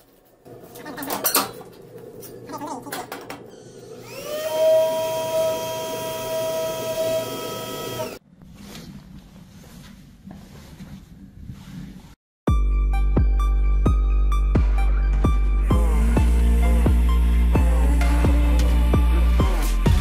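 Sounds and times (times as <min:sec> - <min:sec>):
electric tool motor whining: 0:03.7 - 0:08.2.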